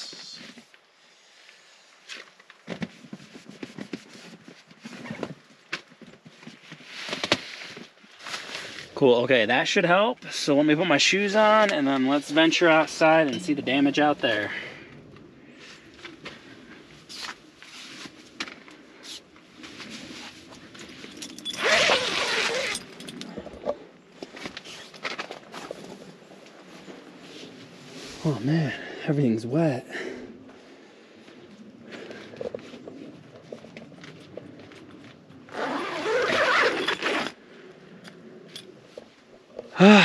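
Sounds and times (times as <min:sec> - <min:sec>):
tent zipper pulled open: 0:02.9 - 0:05.4, 0:17.1 - 0:18.2, 0:19.0 - 0:23.2, 0:24.4 - 0:26.0, 0:35.5 - 0:37.4.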